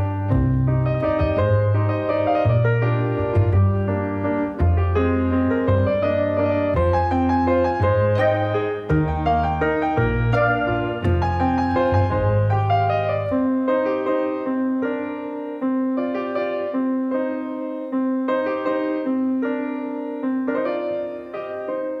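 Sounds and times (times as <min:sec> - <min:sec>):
low bass part: 0:00.0 - 0:13.5
gentle piano music: 0:00.0 - 0:22.0.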